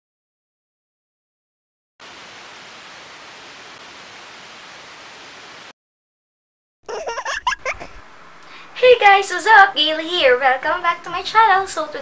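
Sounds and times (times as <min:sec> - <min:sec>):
static hiss: 0:02.0 - 0:05.7.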